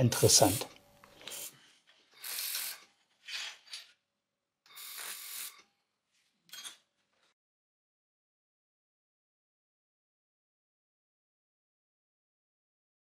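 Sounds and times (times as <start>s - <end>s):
laser welder hissing: 0.1s - 1.6s, 2.2s - 2.9s, 4.7s - 5.6s.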